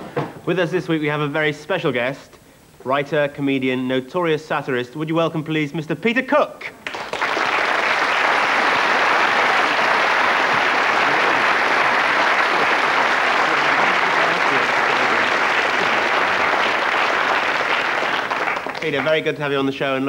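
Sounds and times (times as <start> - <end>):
audience applauding: 6.8 - 19.3.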